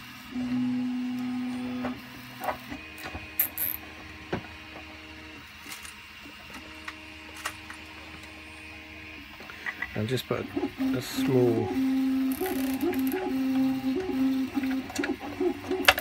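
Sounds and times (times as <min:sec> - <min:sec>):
stepper motors whining: 0:00.1 - 0:16.0.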